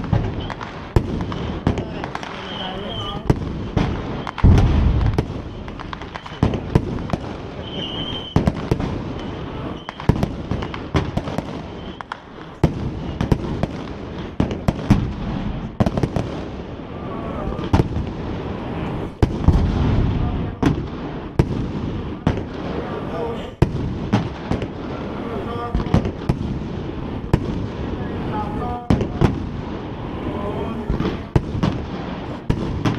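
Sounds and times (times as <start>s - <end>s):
fireworks bangs and crackles: 0.0s - 32.9s
low rumble: 4.4s - 6.1s.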